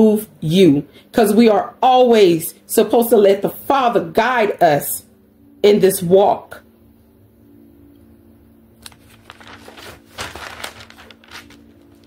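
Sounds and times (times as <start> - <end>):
faint steady hum: 0.0 - 12.0
notebook pages rustling: 8.8 - 12.0.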